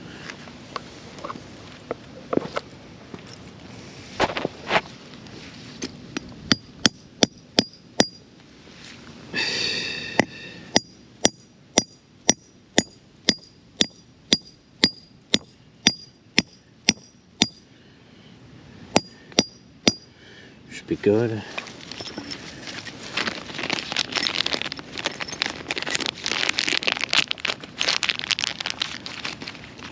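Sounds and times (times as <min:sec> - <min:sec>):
hammer striking metal: 0:06.5 - 0:08.2, 0:10.8 - 0:17.6, 0:19.0 - 0:20.1.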